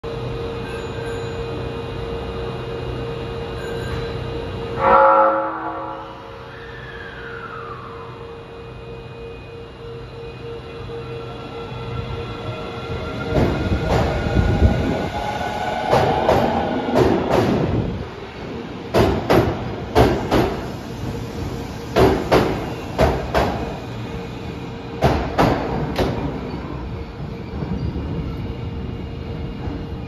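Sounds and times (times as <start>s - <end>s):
train passing hum: 0.1s - 30.0s
subway train wheels clacking: 9.4s - 30.0s.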